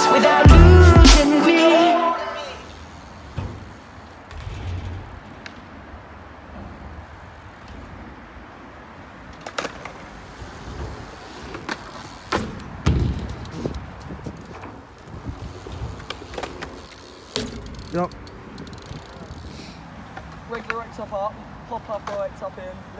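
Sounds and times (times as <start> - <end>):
bike tyres rolling on ramps: 1.5 - 22.8
bike knocking on ramps: 2.8 - 7.9, 10.7 - 18.9
heavy thud: 4.3 - 5.8.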